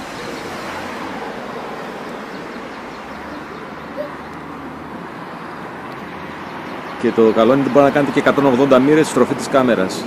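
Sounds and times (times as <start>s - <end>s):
distant road traffic: 0.0s - 10.0s
bird call: 2.0s - 4.4s.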